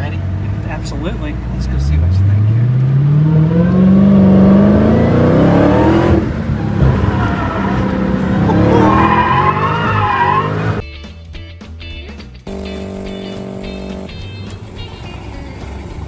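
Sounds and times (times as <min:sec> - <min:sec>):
engine accelerating hard: 0:00.0 - 0:10.8, 0:12.5 - 0:16.0
tyres squealing: 0:06.6 - 0:10.8
music: 0:10.8 - 0:16.0.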